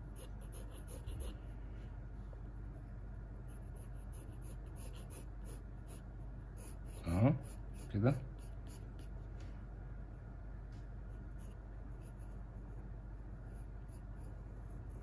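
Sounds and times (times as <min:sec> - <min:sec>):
pencil scratching on paper: 0:00.0 - 0:01.5, 0:03.4 - 0:09.2, 0:11.2 - 0:15.0.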